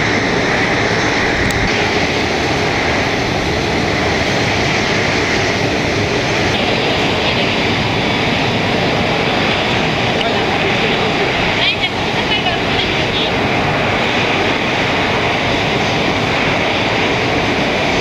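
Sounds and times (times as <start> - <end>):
jet engines taxiing: 0.0 - 18.0.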